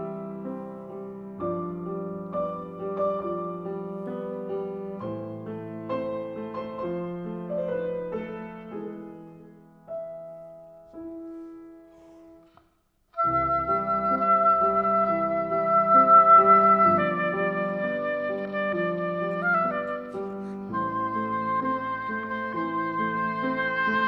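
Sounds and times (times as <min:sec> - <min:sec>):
grand piano playing classical: 0:00.0 - 0:24.0
oboe playing: 0:13.2 - 0:24.0.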